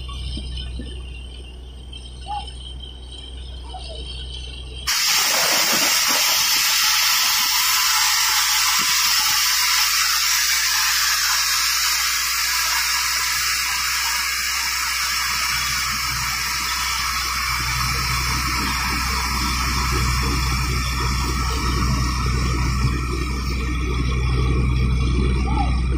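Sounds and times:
water gushing: 4.9 - 24.1
compressed air hissing: 4.9 - 24.4.

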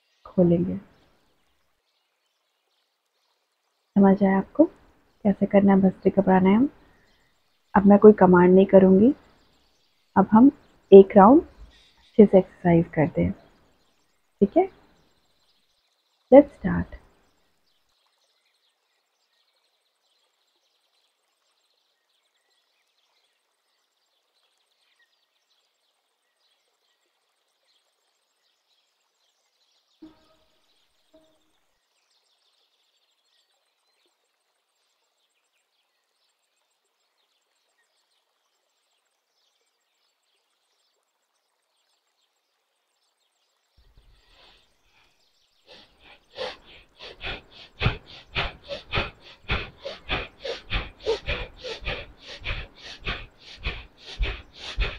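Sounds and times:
faint background hiss: 0.0 - 54.9
rapid forceful nose breaths: 44.0 - 54.9.

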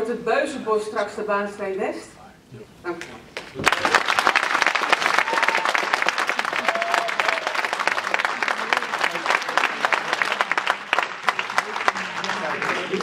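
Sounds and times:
audience applauding: 3.4 - 13.0.

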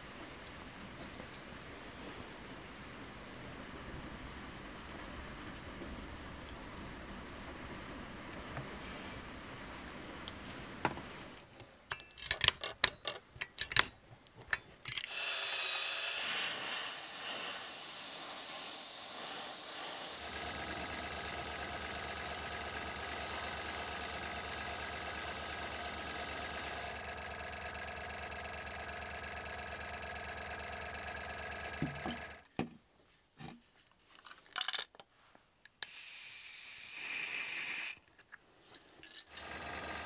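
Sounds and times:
small motor humming: 15.0 - 32.4, 39.3 - 40.0
steady hiss: 15.2 - 27.0.

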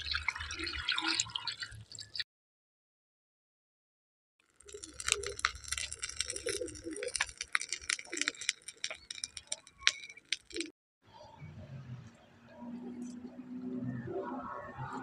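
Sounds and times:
wood fire crackling and popping: 4.4 - 10.7.

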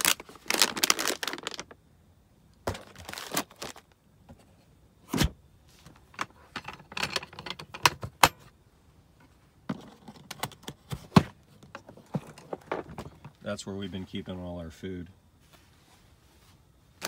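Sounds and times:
plastic tool case rattling: 11.6 - 13.4.

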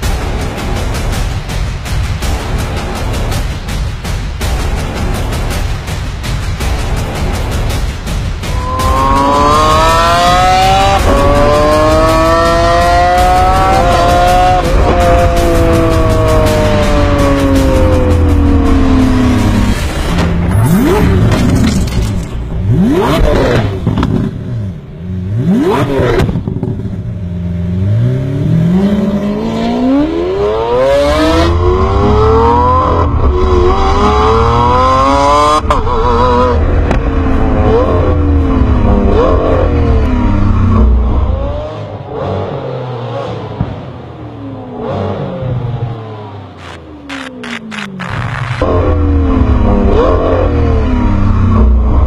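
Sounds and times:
car engine revving: 6.6 - 52.0.

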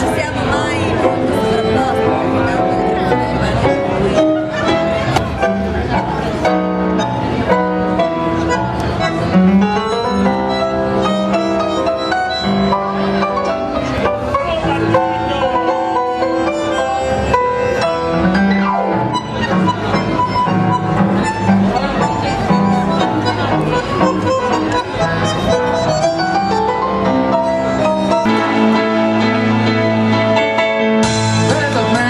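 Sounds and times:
tango music on strings and piano: 0.0 - 32.0.

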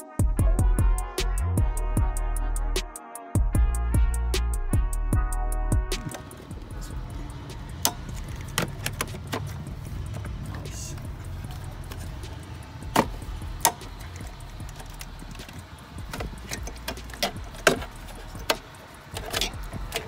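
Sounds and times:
low background rumble: 4.7 - 20.0
plastic connector clicks and knocks: 7.9 - 9.5.

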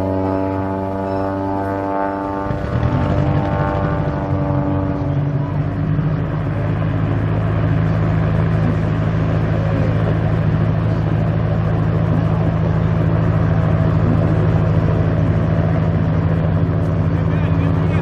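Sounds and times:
propeller plane droning overhead: 0.0 - 18.0.

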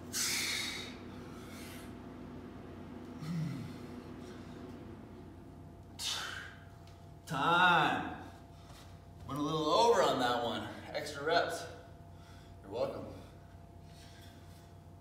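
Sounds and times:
man exhaling forcefully: 0.0 - 1.0, 6.0 - 6.6
man grunting: 3.2 - 3.8.

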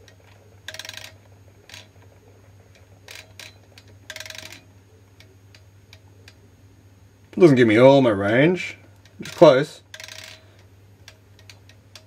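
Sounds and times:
faint mechanical clicks: 0.0 - 6.4, 8.8 - 12.0.

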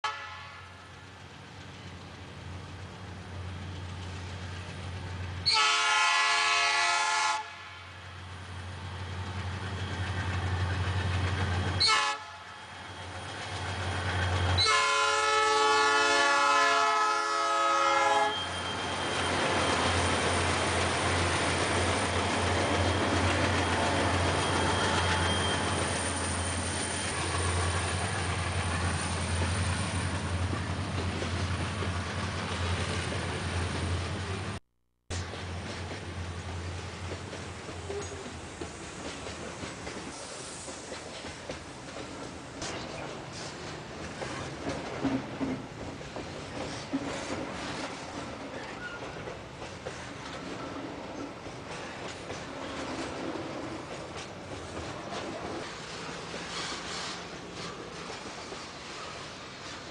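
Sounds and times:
locomotive air horn: 0.0 - 0.8, 5.4 - 8.0, 11.8 - 12.6, 14.6 - 18.8
freight cars rumbling on rails: 35.2 - 59.9.

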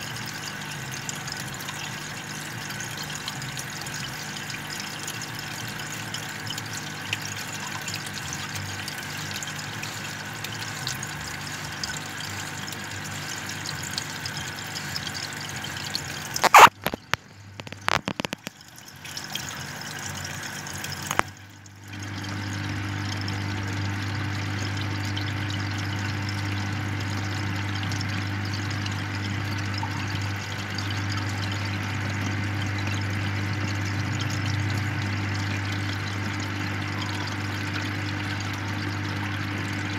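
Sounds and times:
aquarium air stone bubbling: 0.0 - 39.9
steady low hum: 12.6 - 39.9.

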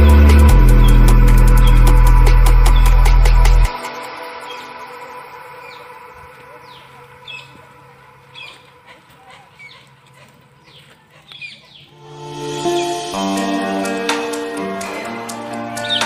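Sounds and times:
background music: 0.0 - 8.4, 11.9 - 16.0
birds chirping: 0.0 - 16.0.

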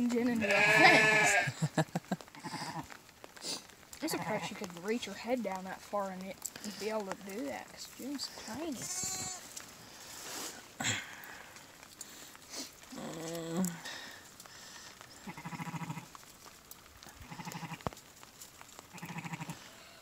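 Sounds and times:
sheep bleating: 0.4 - 1.6, 2.4 - 2.9, 4.1 - 4.5, 8.7 - 9.5, 15.2 - 16.1, 17.2 - 17.9, 18.9 - 19.6.

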